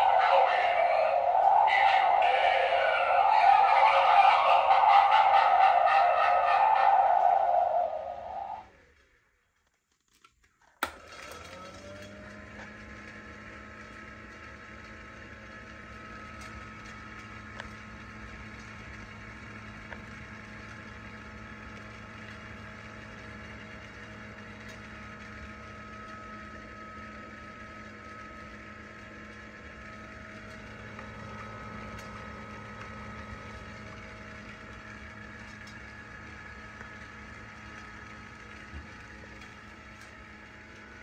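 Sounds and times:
faint high whine: 0:00.0 - 0:08.9
small motor humming: 0:10.9 - 0:41.0.

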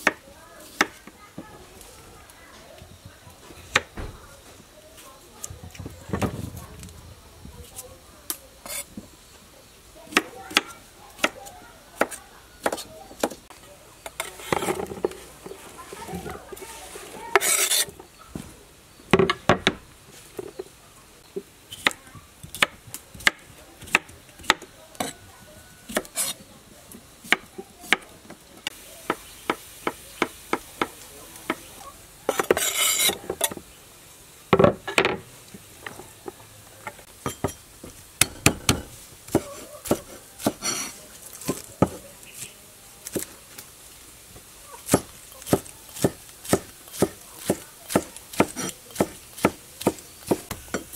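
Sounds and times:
rasping slicing strokes: 0:16.6 - 0:17.9.

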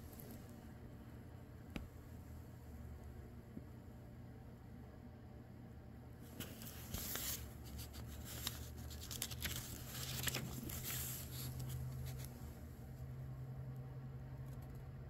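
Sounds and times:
steady low hum: 0:00.0 - 0:15.0
book pages rustling: 0:06.3 - 0:12.6.

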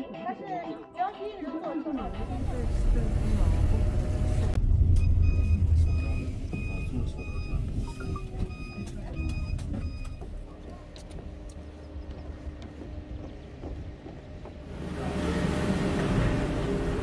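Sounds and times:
engine rumble: 0:02.0 - 0:17.0
electronic warning beeps: 0:04.9 - 0:10.6.

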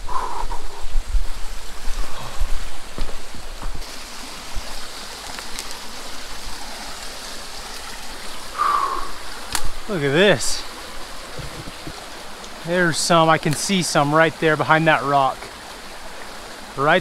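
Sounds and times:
stream rushing over rocks: 0:00.0 - 0:17.0
thumps on microphone: 0:11.4 - 0:12.0.

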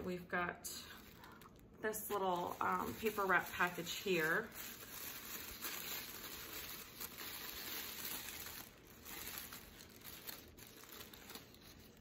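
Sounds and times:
paper wrapping rustling: 0:00.8 - 0:12.0.

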